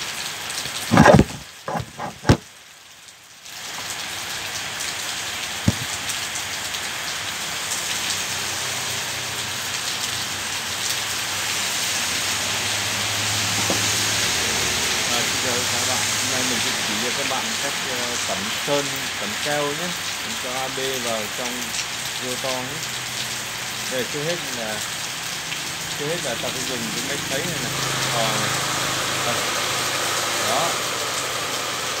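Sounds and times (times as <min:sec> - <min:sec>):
rain hissing: 0:00.0 - 0:32.0
loud knocks: 0:01.0 - 0:02.4, 0:05.7 - 0:05.9.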